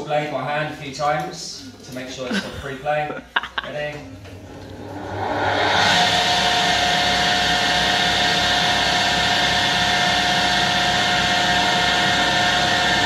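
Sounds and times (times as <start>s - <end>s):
table saw running: 4.7s - 13.0s.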